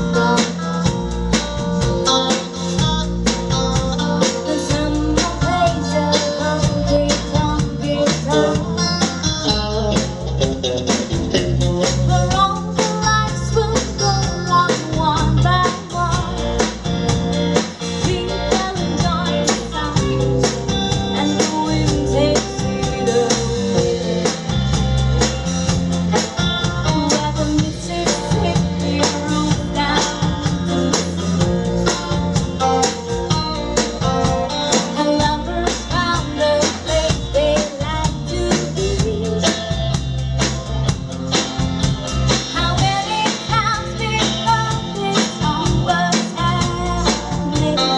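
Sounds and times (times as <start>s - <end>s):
drum kit beat: 0.0s - 47.9s
electric guitar: 0.0s - 47.9s
woman singing: 4.2s - 9.6s, 11.8s - 16.8s, 17.9s - 24.6s, 26.5s - 31.7s, 34.7s - 40.0s, 42.4s - 47.9s.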